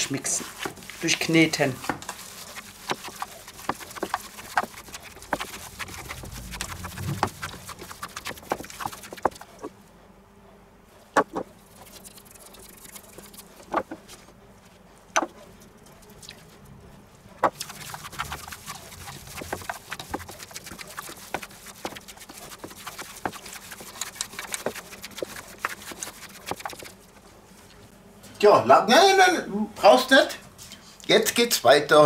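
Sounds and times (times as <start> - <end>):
meat squelching and slapping: 2.0 - 9.7, 17.5 - 27.0.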